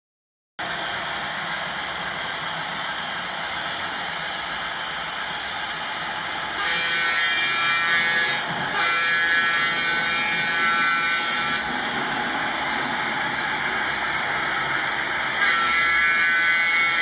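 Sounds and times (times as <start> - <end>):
locomotive engine sound: 0.6 - 17.0
model locomotive horn blasts: 6.6 - 11.8, 15.3 - 17.0.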